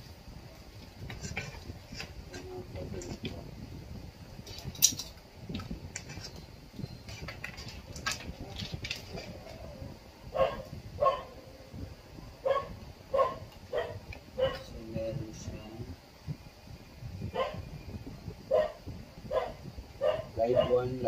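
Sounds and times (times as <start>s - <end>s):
cables rustling and clicking: 4.4s - 9.9s
dog barking: 10.3s - 11.4s, 12.4s - 14.7s, 17.4s - 17.6s, 18.5s - 20.9s.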